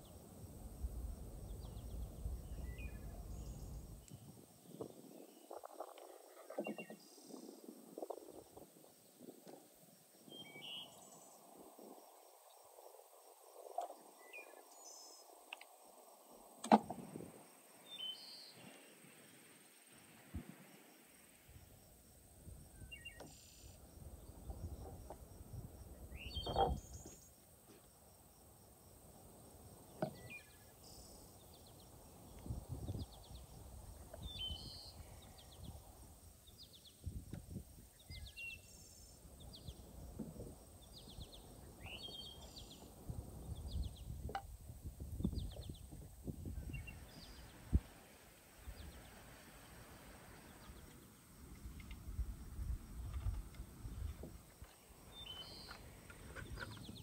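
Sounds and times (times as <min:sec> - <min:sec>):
wild birds chirping: 0:00.0 - 0:21.4, 0:22.6 - 0:27.4, 0:29.0 - 0:44.4, 0:45.2 - 0:57.0.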